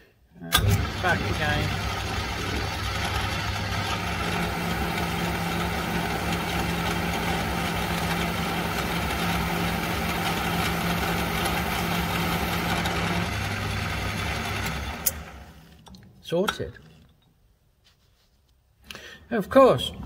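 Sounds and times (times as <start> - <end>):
metal lathe humming: 0.5 - 15.8.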